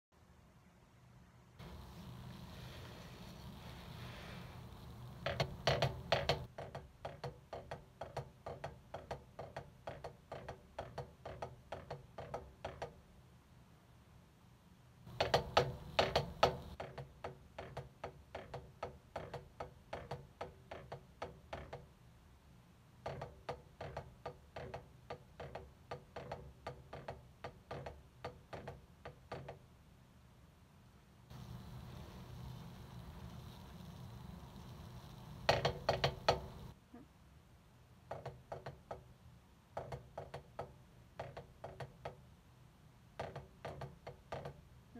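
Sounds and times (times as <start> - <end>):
drumsticks playing flams: 1.6 - 6.5, 31.3 - 36.8.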